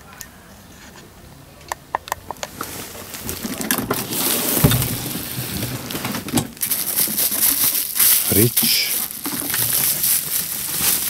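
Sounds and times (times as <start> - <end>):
bubble wrap rustling and crinkling: 2.6 - 11.0.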